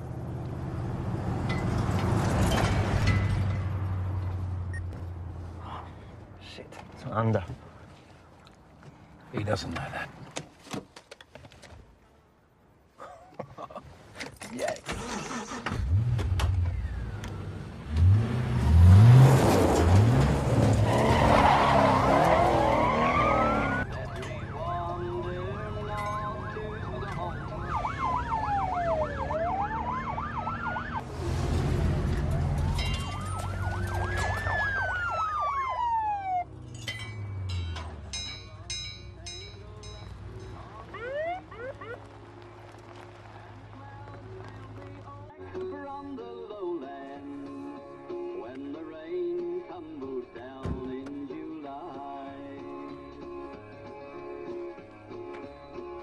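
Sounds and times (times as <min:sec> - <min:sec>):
car engine accelerating: 0:15.3 - 0:23.8, 0:28.0 - 0:32.8
police siren wail and yelp: 0:21.3 - 0:23.8, 0:26.2 - 0:31.0, 0:32.4 - 0:36.5, 0:40.9 - 0:42.0.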